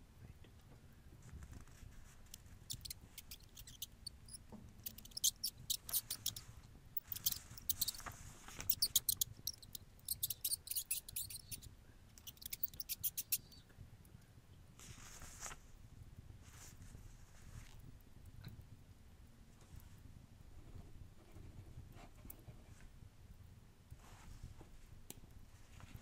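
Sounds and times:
faint low background: 0.0s - 26.0s
mouse squeaking: 2.3s - 13.6s.

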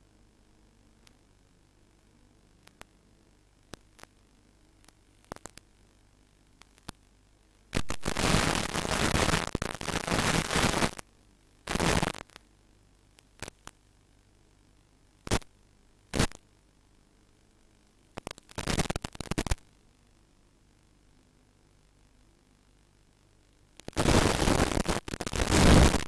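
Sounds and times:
loud static hiss: 0.0s - 26.0s
brief crackles: 18.2s - 19.6s.

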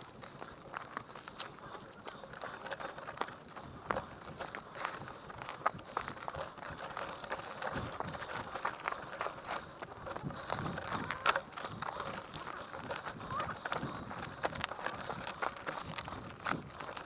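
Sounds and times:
bike clicking and rattling: 0.0s - 17.0s
bike tyres crunching on gravel: 0.0s - 17.0s.

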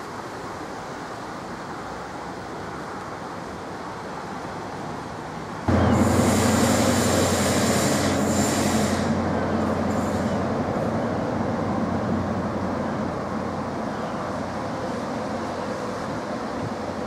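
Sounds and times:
train rail rumble: 3.8s - 17.0s
high hiss: 5.6s - 11.6s.

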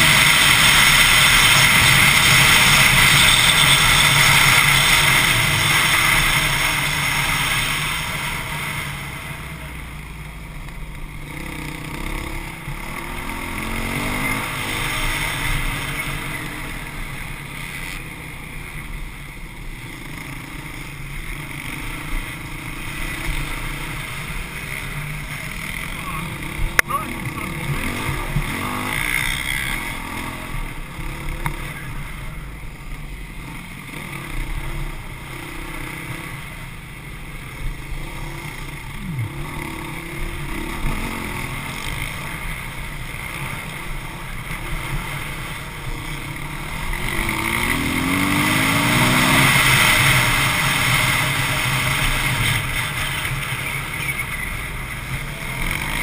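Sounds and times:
dirt bike engine revving: 0.0s - 9.7s, 10.9s - 56.0s.

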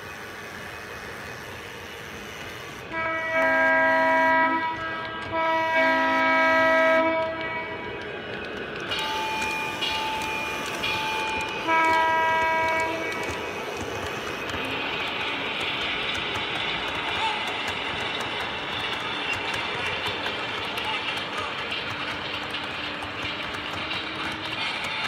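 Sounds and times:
model train running: 0.0s - 25.0s
model train horn blasts: 2.4s - 7.7s, 11.2s - 13.4s.

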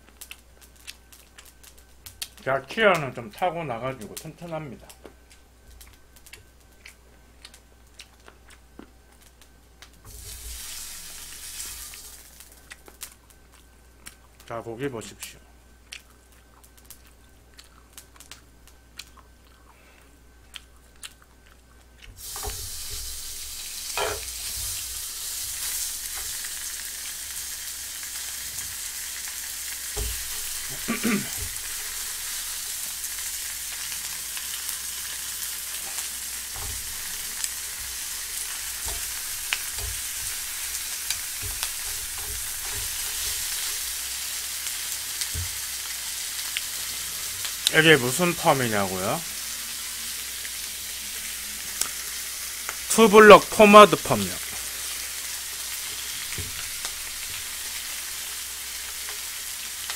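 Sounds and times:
meat sizzling in a frying pan: 10.0s - 13.5s, 22.1s - 59.9s
tongs ticking against pan: 36.6s - 44.0s.

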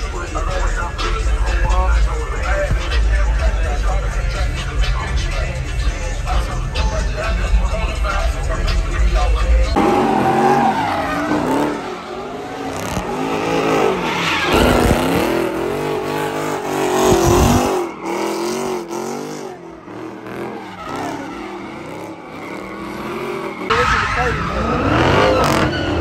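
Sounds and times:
car engine revving: 0.0s - 26.0s
tyres squealing on pavement: 9.3s - 26.0s.

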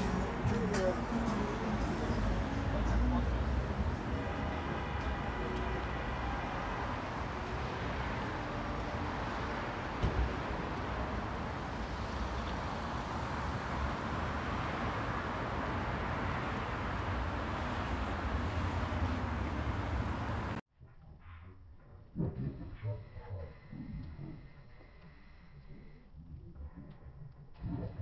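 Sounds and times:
passing cars rumbling: 0.0s - 20.6s.

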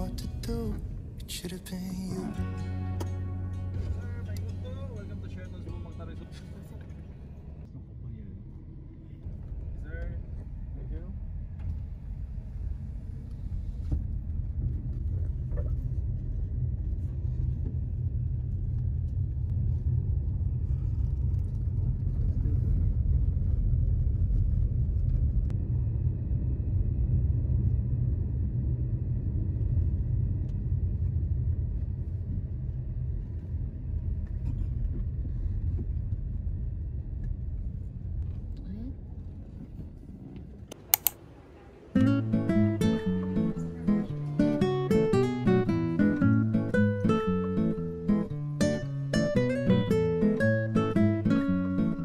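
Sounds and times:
car driving rumble: 0.0s - 40.7s.

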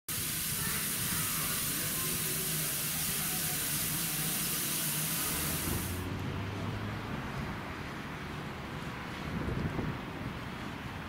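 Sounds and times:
steam hissing: 0.1s - 6.0s.

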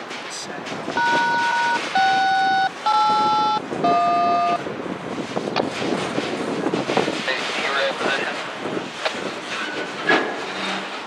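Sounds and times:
rail yard background noise: 0.0s - 11.0s
touch-tone dialing tones: 1.0s - 4.6s.

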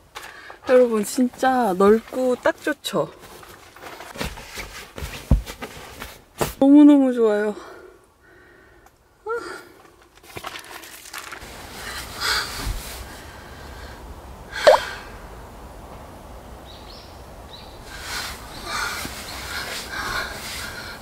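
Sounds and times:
steady outdoor hiss: 11.4s - 21.0s.

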